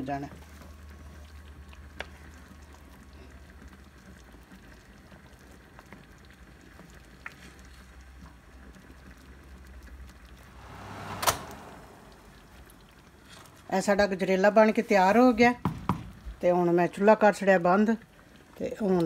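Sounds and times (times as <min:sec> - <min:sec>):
thick pudding bubbling in a pan: 0:00.0 - 0:10.6, 0:12.0 - 0:19.0
low steady hum: 0:10.3 - 0:13.8.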